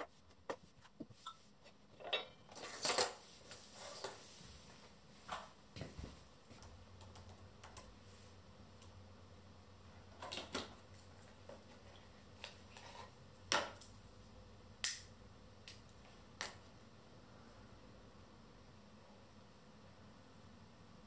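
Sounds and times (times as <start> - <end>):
faint room hiss: 0.0 - 21.0.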